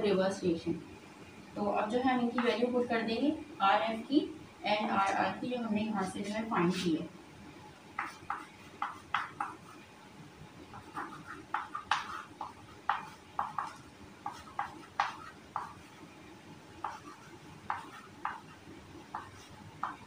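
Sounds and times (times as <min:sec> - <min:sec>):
chalk tapping and scratching: 0:08.0 - 0:09.8, 0:10.7 - 0:16.1, 0:16.8 - 0:20.0.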